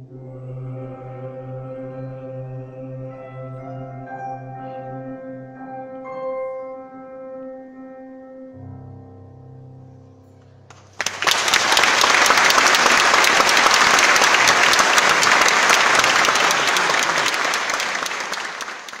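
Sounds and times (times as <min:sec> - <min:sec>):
audience applause: 0:10.7 - 0:19.0.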